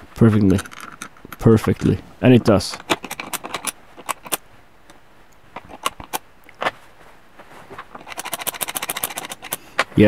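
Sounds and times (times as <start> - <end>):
metal parts clicking: 0.5 - 1.9, 2.6 - 4.4, 5.6 - 6.2, 7.9 - 9.9.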